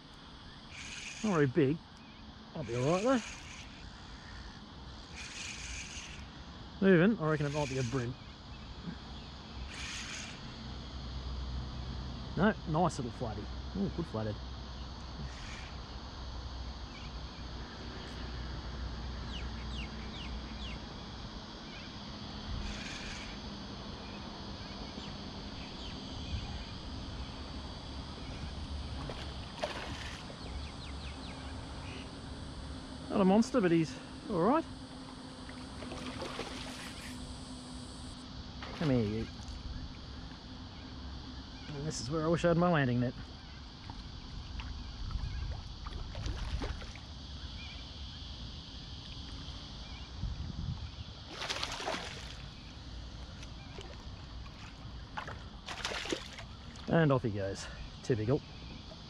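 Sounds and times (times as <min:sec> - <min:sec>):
faint bird chirps: 0:00.4 - 0:06.4
fish splashing in water: 0:28.9 - 0:30.5, 0:35.5 - 0:37.2, 0:45.5 - 0:47.1, 0:51.3 - 0:52.6, 0:53.6 - 0:56.6.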